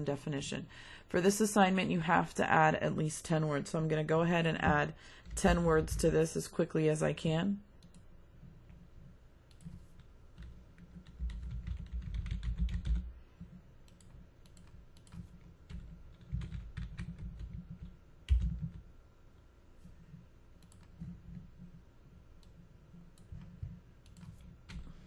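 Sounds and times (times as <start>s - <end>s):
computer keyboard typing: 9.5s - 18.9s, 20.6s - 21.8s, 22.4s - 25.0s.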